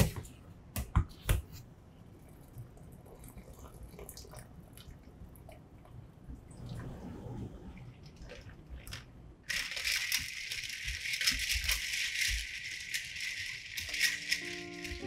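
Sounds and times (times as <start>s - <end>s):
water dripping: 2.3s - 6.8s
ice cubes clinking in bowl: 9.5s - 15.0s.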